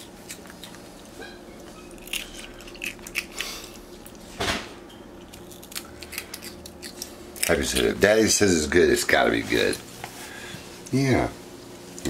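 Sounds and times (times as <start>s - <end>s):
monkey crunching cereal: 0.0s - 1.1s, 1.9s - 4.2s, 5.2s - 8.1s.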